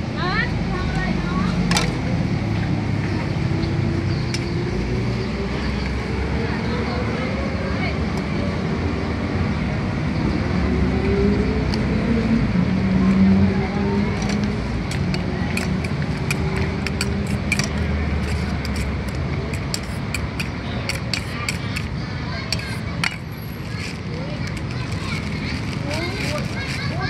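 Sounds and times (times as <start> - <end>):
road traffic rumble: 0.0 - 27.0
passing engine: 0.6 - 20.7
metal spoon scraping steel bowl: 14.9 - 27.0.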